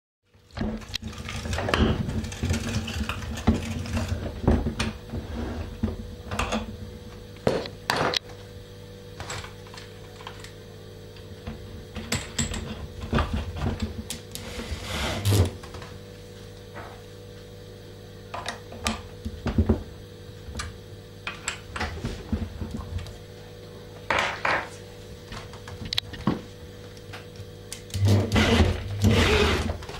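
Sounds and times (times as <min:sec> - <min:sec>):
electric drill running: 0:28.0 - 0:29.8.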